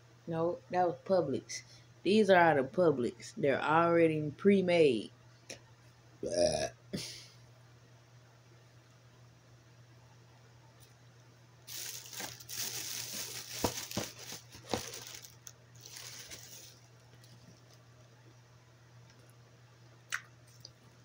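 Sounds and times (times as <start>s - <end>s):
plastic packaging crinkling: 11.7s - 17.8s.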